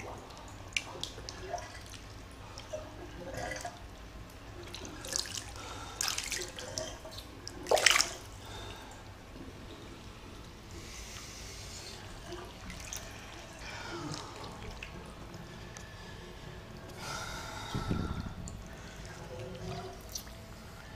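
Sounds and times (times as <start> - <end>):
water splashes: 0.0 - 10.0, 10.8 - 15.5
bathwater sloshing and dripping: 0.0 - 20.9.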